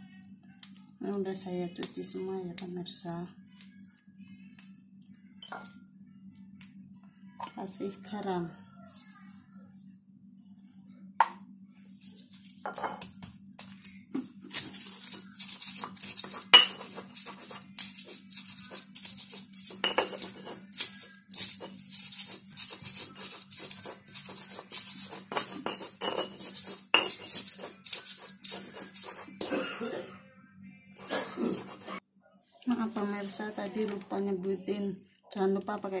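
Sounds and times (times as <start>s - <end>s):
stone pestle grinding in mortar: 14.5s - 29.6s, 31.0s - 32.0s.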